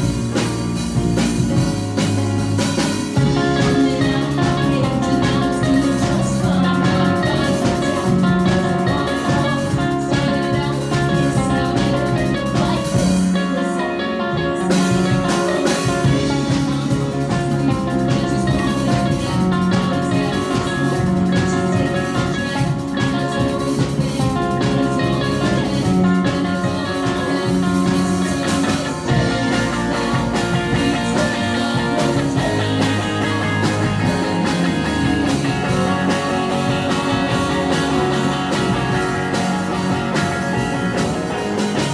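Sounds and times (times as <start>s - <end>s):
drum kit: 0.0s - 41.9s
electric guitar: 0.0s - 41.9s
keyboard: 0.0s - 41.9s.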